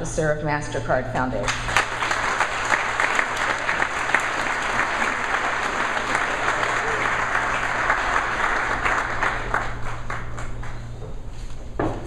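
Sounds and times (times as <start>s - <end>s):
audience applause: 1.5s - 10.8s.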